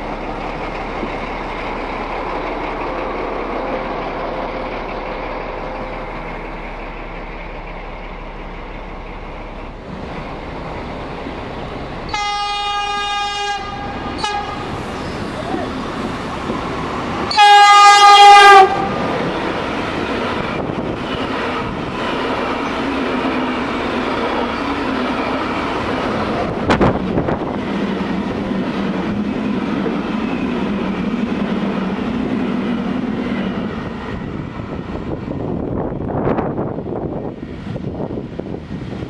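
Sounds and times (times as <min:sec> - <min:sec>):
train wheels rumbling on rail: 0:00.0 - 0:39.0
train horn blast: 0:12.1 - 0:14.8, 0:17.3 - 0:19.0.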